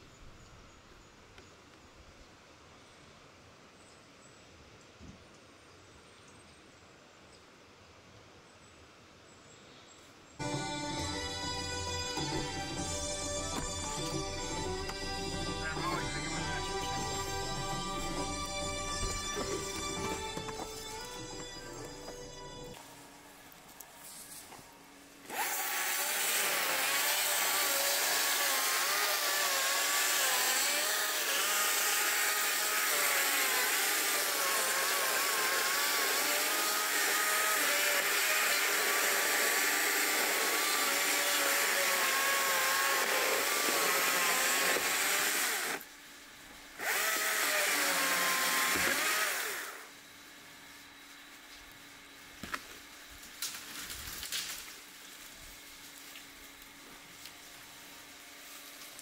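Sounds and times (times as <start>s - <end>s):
chainsaw cutting wood: 10.4s - 22.8s, 25.2s - 45.9s, 46.7s - 50.0s.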